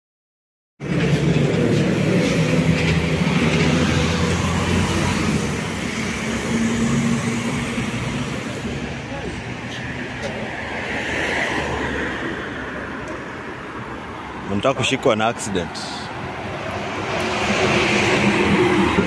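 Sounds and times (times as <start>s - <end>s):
traffic engines and tyres: 0.8s - 19.0s
car passing close by: 0.9s - 9.0s.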